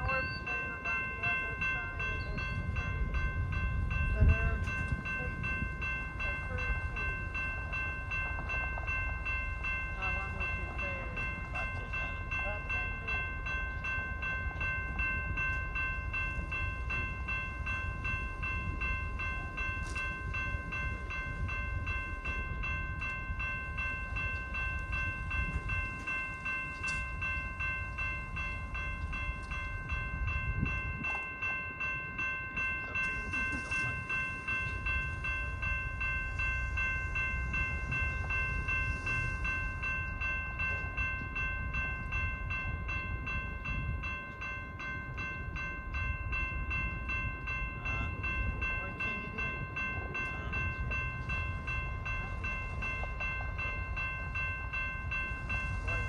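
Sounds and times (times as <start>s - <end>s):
crossing warning bell ringing: 0.0s - 56.0s.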